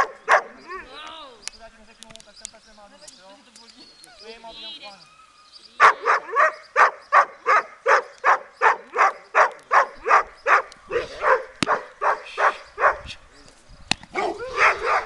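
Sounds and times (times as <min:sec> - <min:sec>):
large dog barking: 0:00.0 - 0:00.9, 0:05.8 - 0:13.1, 0:14.1 - 0:15.0.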